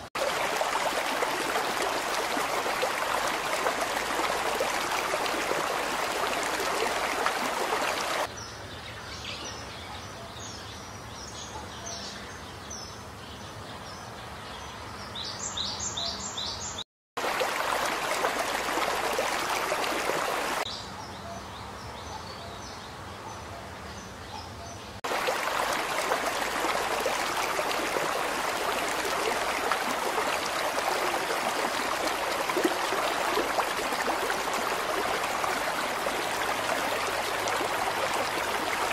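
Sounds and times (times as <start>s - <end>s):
river water rushing: 0.0s - 8.3s, 17.2s - 20.6s, 25.0s - 38.9s.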